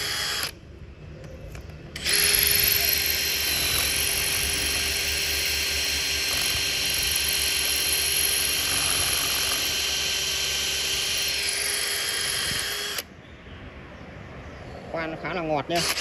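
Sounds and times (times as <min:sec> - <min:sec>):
electric drill boring into masonry: 0:00.0 - 0:00.6, 0:02.0 - 0:13.1, 0:15.7 - 0:16.0.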